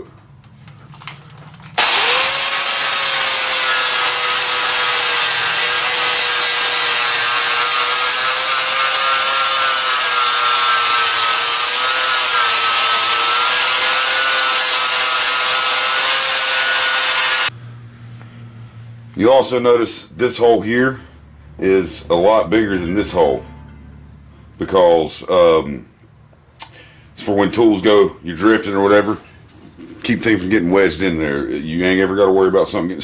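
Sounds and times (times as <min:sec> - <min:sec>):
angle grinder grinding steel: 0:01.8 - 0:17.5.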